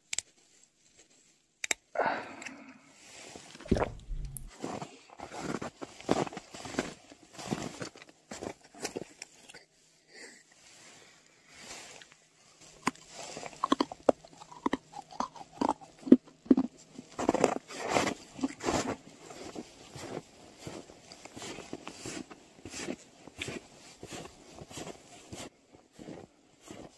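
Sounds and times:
footsteps crunching through snow: 3.7 - 4.5, 17.8 - 26.9.

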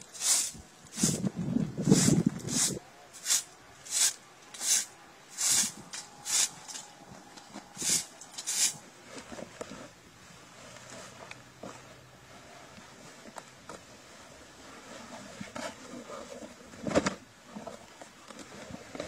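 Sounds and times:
broom sweeping hard ground: 0.0 - 6.9, 7.7 - 11.2.

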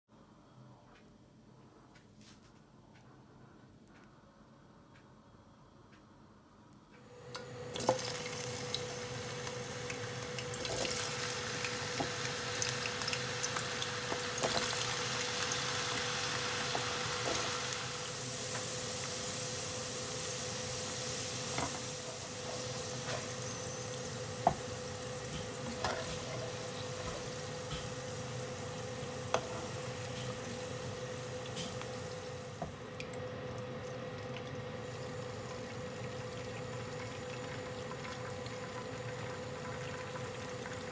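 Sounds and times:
potatoes sizzling in hot oil: 7.4 - 32.8
tofu sizzling in oil: 7.4 - 32.8.

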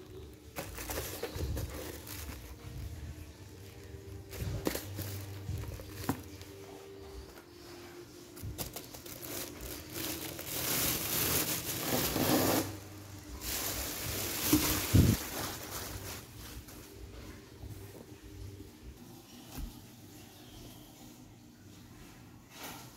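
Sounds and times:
plastic wrapping crinkling: 0.0 - 17.3.

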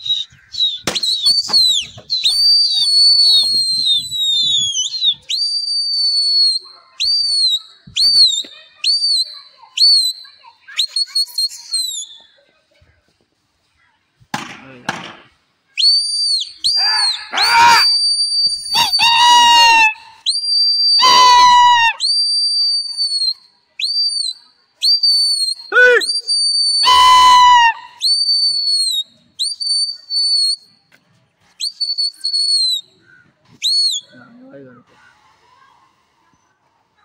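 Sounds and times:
person whistling shrilly: 0.0 - 12.2, 15.8 - 30.8, 31.5 - 32.9, 33.6 - 34.2
high shouted calls: 15.8 - 23.4, 24.8 - 30.6.

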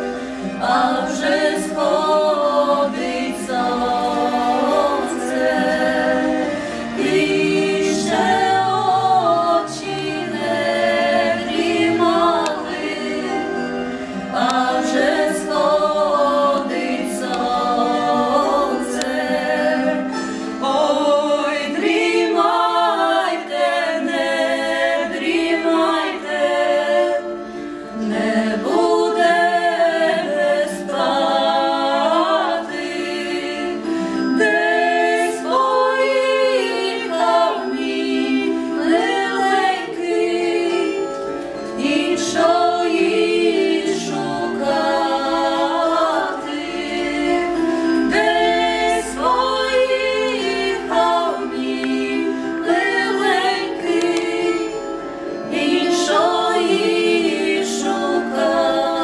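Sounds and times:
women singing a cappella: 0.0 - 59.0.

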